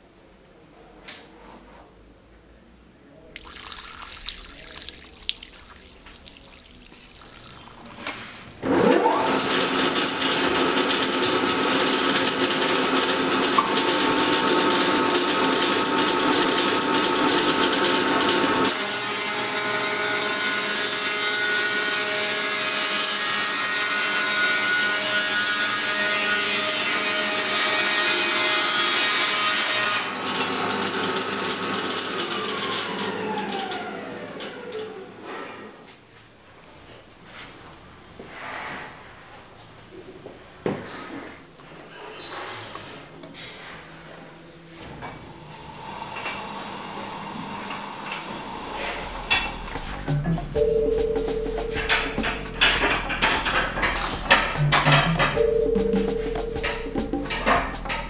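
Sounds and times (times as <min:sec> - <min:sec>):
water trickling from tap: 0:03.4 - 0:08.2
band sawmill running: 0:08.6 - 0:35.6, 0:45.2 - 0:50.5.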